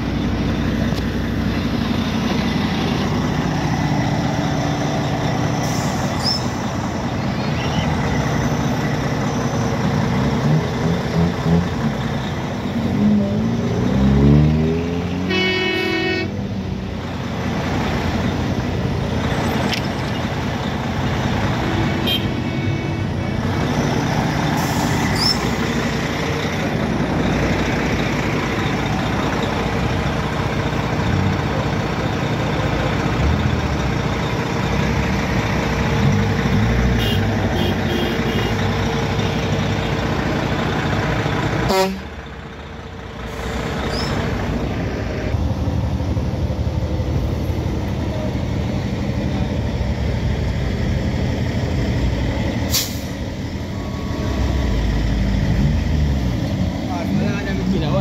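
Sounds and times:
heavy truck engines: 0.0s - 58.0s
truck horn blowing: 15.2s - 16.4s, 21.7s - 23.5s, 36.8s - 39.4s, 41.6s - 42.2s.

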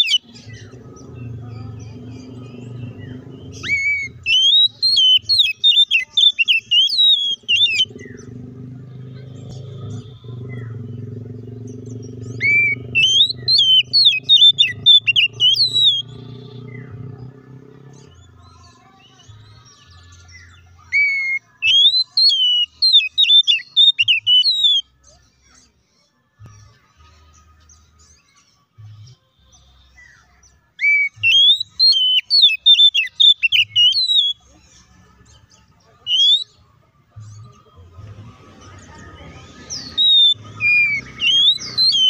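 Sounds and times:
bird singing whistled notes: 0.0s - 8.4s, 11.6s - 17.0s, 19.2s - 25.2s, 27.6s - 36.6s, 38.6s - 42.0s.

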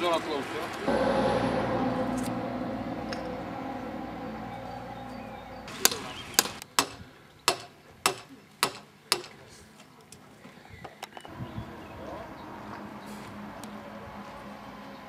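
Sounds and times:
machine hum: 0.8s - 6.6s.

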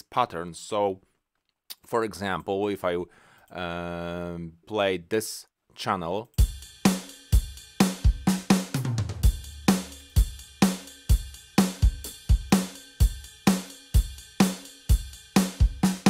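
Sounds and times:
kick and snare drum beat: 6.4s - 16.0s.

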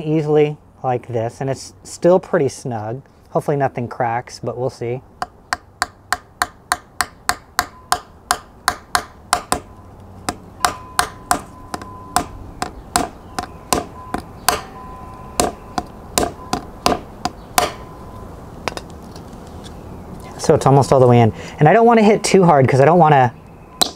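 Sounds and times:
hammer tapping metal: 5.2s - 9.7s, 10.3s - 14.8s, 15.4s - 17.9s
faint steady ring: 10.6s - 12.2s, 13.9s - 16.7s.

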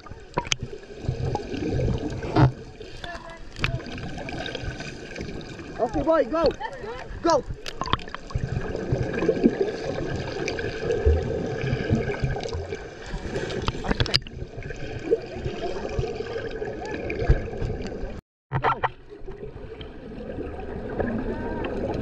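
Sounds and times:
underwater churning and bubbling: 0.0s - 22.0s
underwater clicks and knocks: 0.3s - 1.4s, 2.1s - 3.8s, 7.6s - 8.4s, 13.6s - 14.4s.

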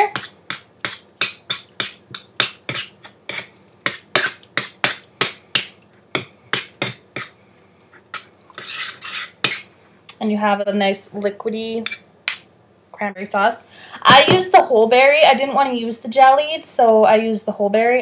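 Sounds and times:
spoon scraping bowl: 0.0s - 5.0s, 7.9s - 9.7s.

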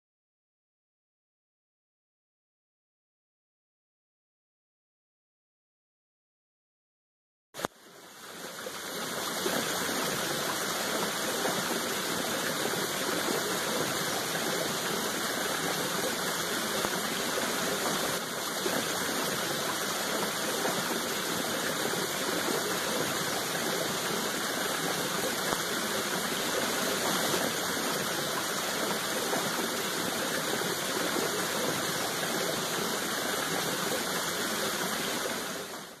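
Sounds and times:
waterfall rushing: 8.0s - 36.0s.

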